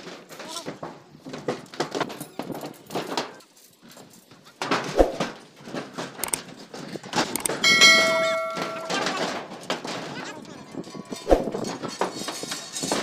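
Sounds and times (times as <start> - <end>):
steel rebar knocking and clattering: 4.6 - 13.0
bell-like electronic chime: 7.6 - 9.1.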